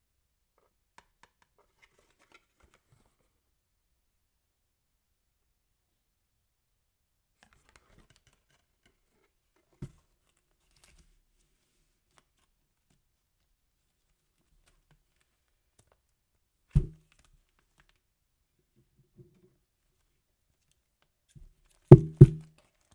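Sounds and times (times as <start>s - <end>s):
dull thump: 16.8s - 17.0s, 21.9s - 22.5s.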